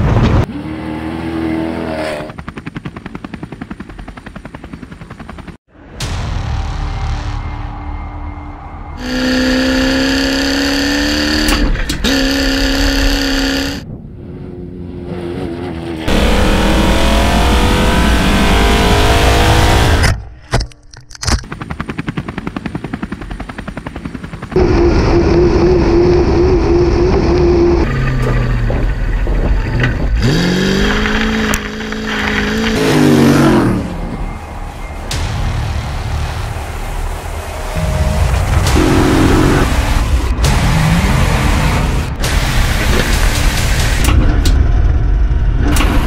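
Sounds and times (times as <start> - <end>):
rally car engine accelerating: 9.0 - 20.1, 37.9 - 44.1.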